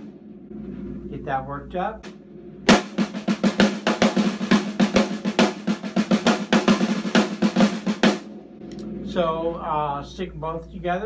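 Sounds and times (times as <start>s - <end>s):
rapid snare drum roll: 2.7s - 8.3s.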